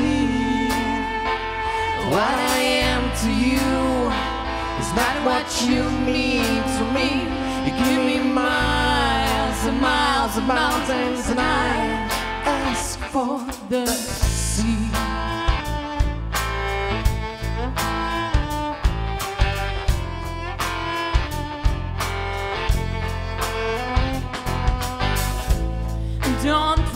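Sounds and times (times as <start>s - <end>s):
low bass notes: 0.0s - 13.2s, 14.1s - 26.9s
woman singing: 0.0s - 15.7s, 26.2s - 26.9s
acoustic guitar: 0.0s - 26.9s.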